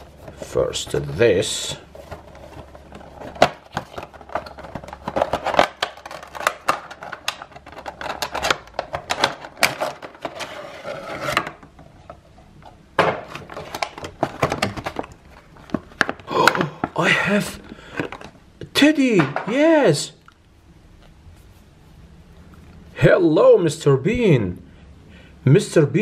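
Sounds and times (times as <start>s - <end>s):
cardboard and plastic rustling: 0.0s - 17.1s, 17.7s - 18.4s.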